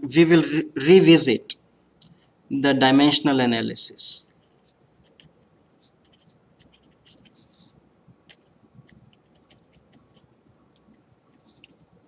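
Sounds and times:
marker pen scratching on paper: 4.3s - 12.0s.

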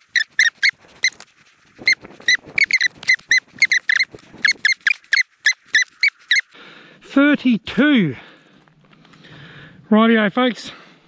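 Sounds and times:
animal squeaky chirps: 0.0s - 1.2s, 1.8s - 6.6s
handling rustle: 0.0s - 6.6s.

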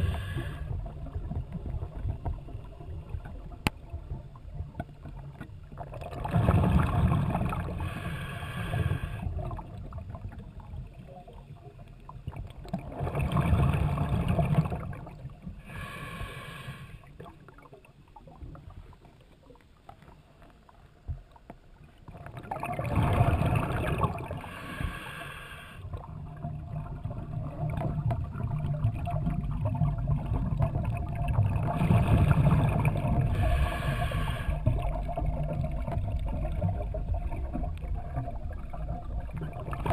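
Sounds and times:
diver exhaling underwater bubbles: 0.0s - 1.4s, 5.8s - 9.9s, 12.8s - 17.2s, 22.3s - 39.9s.

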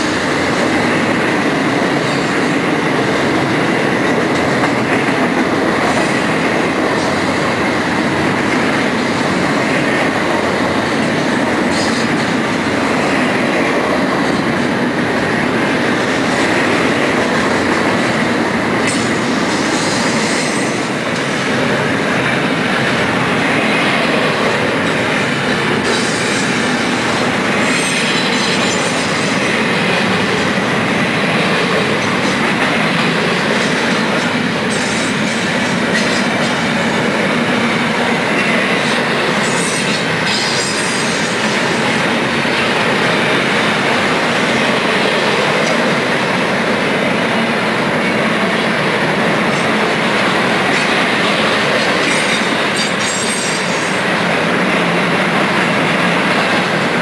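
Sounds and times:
train wheels rumbling on rail: 0.0s - 57.0s.

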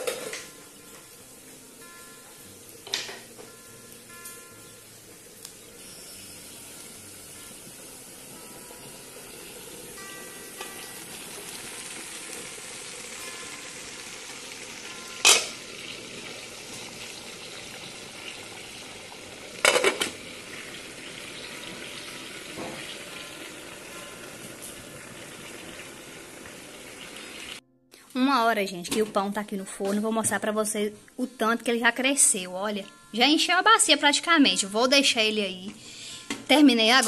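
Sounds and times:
pots and lids clanking: 0.0s - 1.1s, 2.2s - 3.6s, 5.5s - 25.8s
food sizzling in pans: 0.0s - 27.6s, 32.1s - 37.0s.

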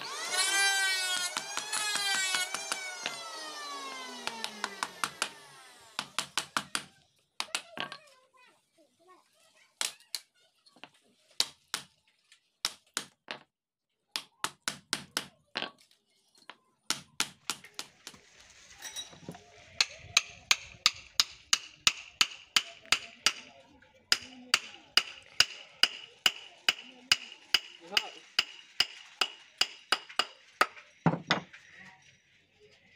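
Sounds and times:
wooden knocks: 25.0s - 31.5s.

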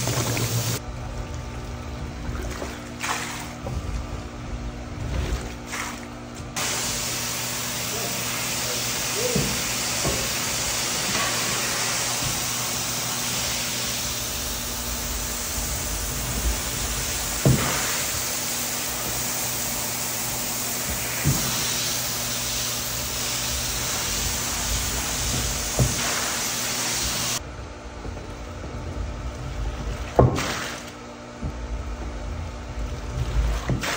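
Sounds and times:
low motor hum: 0.0s - 6.6s, 12.0s - 21.1s, 27.4s - 33.8s
rushing hiss: 6.6s - 27.4s.

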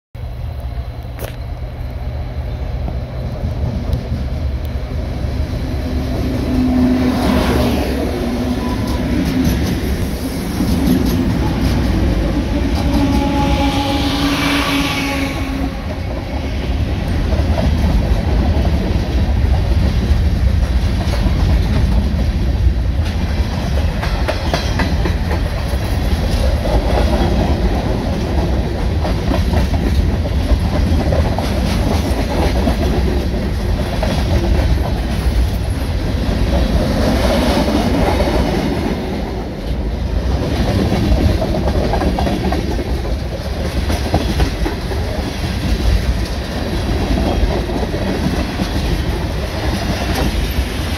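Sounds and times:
train wheels rumbling on rails: 0.2s - 50.9s.

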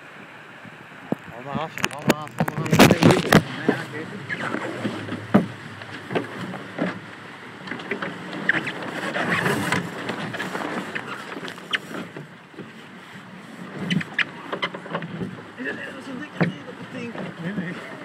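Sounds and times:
water rushing along hulls: 0.0s - 18.0s
hull knocks: 1.8s - 8.2s.

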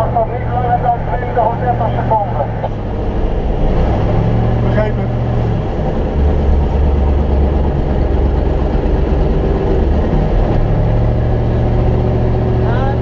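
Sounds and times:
truck diesel engine droning: 0.0s - 13.0s.

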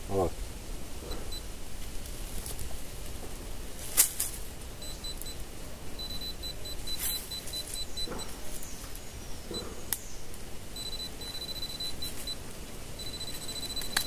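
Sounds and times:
pinpointer rapid high beeps: 4.8s - 5.4s, 6.0s - 8.3s, 10.8s - 12.4s, 13.0s - 14.0s.

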